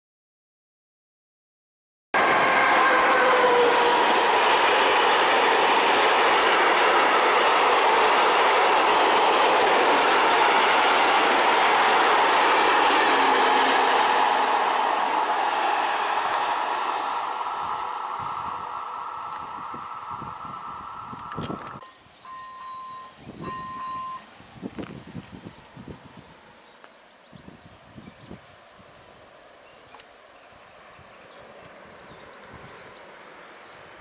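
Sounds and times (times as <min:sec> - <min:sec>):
train wheels rolling on rails: 0:02.2 - 0:21.8
high ringing tone: 0:21.8 - 0:24.3.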